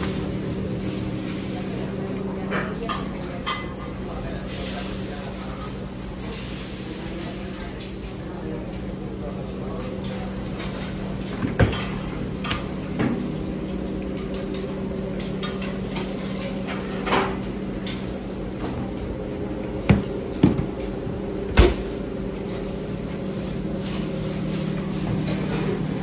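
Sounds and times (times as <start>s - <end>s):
kitchen machinery hum: 0.0s - 26.0s
pots dishes and utensils clanking: 2.4s - 4.7s, 9.7s - 20.9s, 23.5s - 26.0s.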